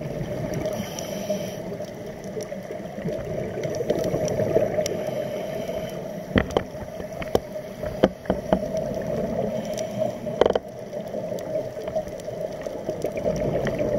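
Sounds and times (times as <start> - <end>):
bubbles rattling: 10.3 - 13.9.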